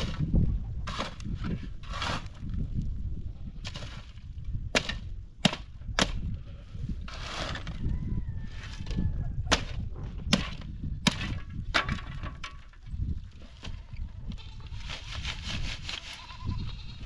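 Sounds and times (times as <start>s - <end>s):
dirt and gravel scraped: 0.0s - 17.0s
shovel blade striking stones: 4.8s - 6.2s.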